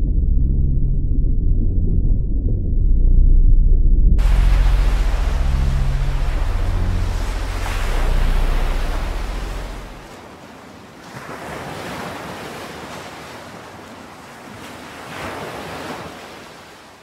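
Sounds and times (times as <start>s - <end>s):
wind rumble on microphone: 0.0s - 10.2s
ocean surf washing onto beach: 4.2s - 17.0s.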